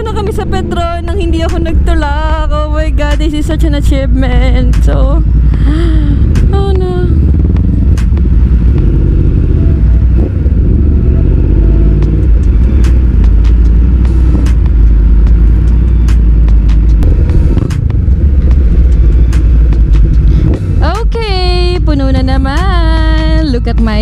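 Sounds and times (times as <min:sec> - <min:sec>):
motorcycle engine running: 0:00.0 - 0:24.0
wind rumble on microphone: 0:01.3 - 0:14.0.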